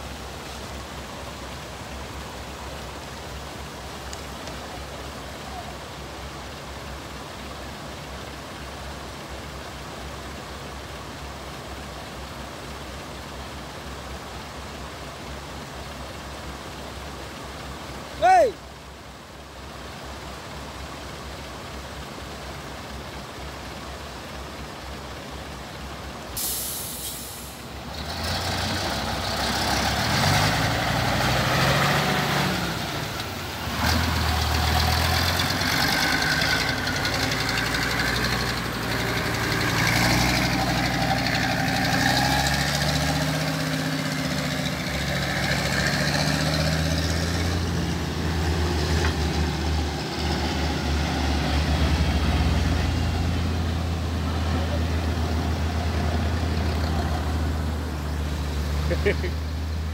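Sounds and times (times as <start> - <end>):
rushing water: 0.0 - 59.9
short sharp hiss: 26.4 - 27.7
truck engine revving: 27.7 - 59.9.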